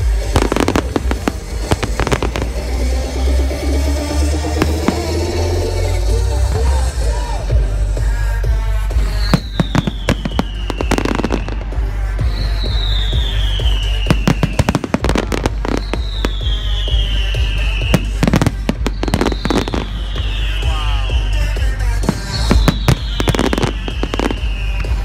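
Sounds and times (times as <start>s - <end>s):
fireworks bursting and crackling: 0.0s - 7.4s, 8.7s - 25.0s
high falling tone: 0.6s - 6.6s.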